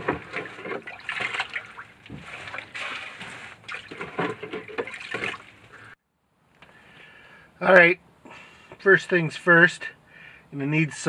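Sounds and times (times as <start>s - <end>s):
water splashing and sloshing: 0.0s - 6.0s.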